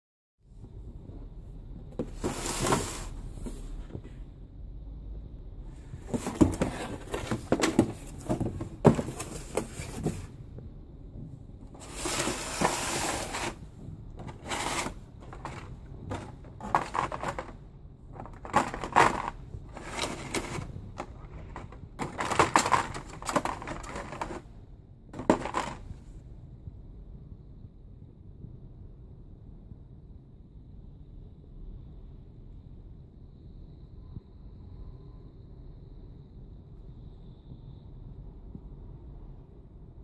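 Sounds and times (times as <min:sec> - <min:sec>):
cardboard box handling: 0:06.0 - 0:10.3, 0:11.8 - 0:13.6, 0:14.2 - 0:17.6, 0:18.2 - 0:24.4, 0:25.2 - 0:25.8
lid scraping off box: 0:11.8 - 0:13.6, 0:14.2 - 0:17.6, 0:18.2 - 0:24.4, 0:25.2 - 0:25.8.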